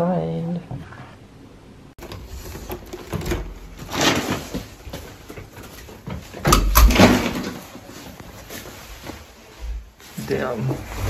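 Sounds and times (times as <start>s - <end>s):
door opening and shutting: 6.4s - 7.6s.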